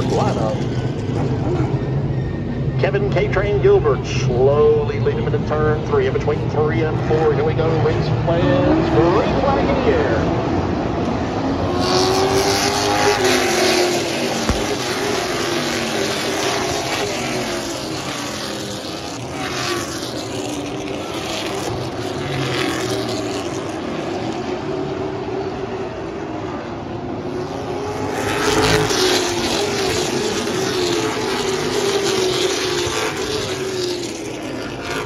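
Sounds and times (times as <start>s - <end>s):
racing car engines passing: 0.0s - 35.0s.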